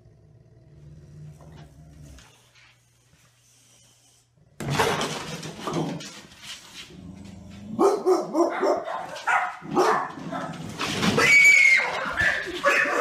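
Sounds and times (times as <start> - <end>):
dog barking: 7.8 - 10.6, 11.7 - 13.0.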